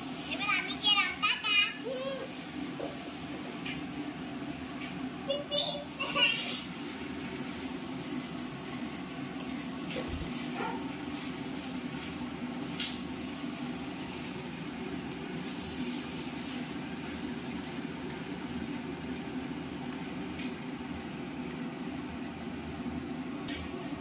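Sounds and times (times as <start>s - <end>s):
even hiss: 5.2s - 8.9s.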